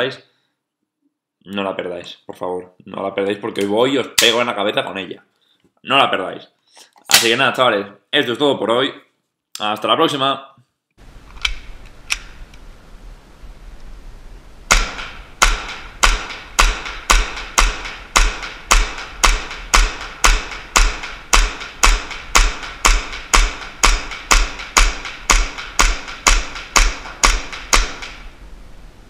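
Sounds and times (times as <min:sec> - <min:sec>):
airsoft pistol shots echoing: 0:14.7 - 0:28.3.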